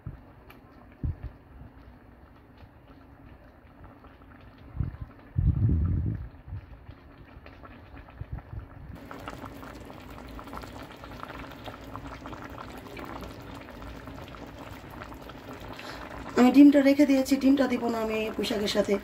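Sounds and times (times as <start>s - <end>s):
broth bubbling in a pan: 0.0s - 19.0s.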